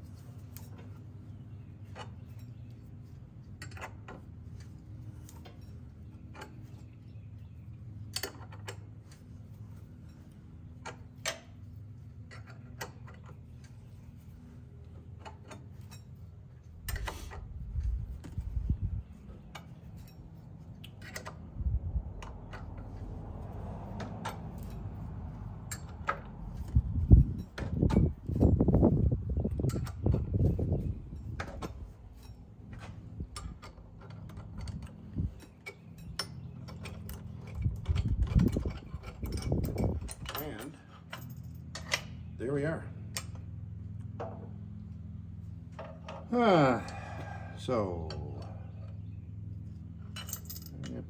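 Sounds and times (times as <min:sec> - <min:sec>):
hand tools clinking on metal: 0:24.0 - 0:28.5, 0:31.1 - 0:43.4, 0:45.8 - 0:49.0, 0:50.0 - 0:51.0.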